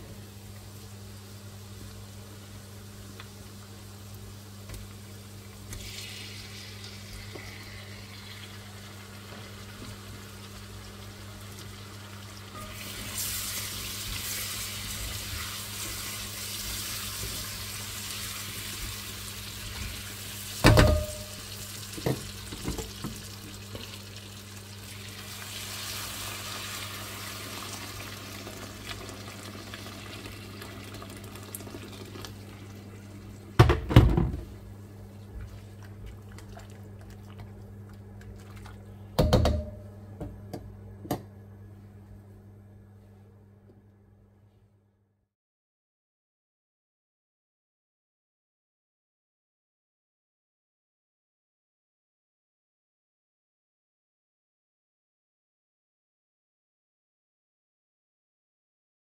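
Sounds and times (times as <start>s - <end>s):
water running from tap: 21.0s - 32.8s.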